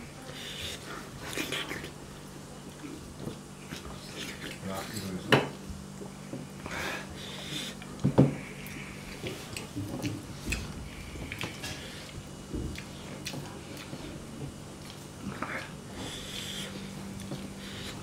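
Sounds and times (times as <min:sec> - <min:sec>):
wet chewing and mouth smacks: 0:08.6 - 0:14.2, 0:14.8 - 0:18.0.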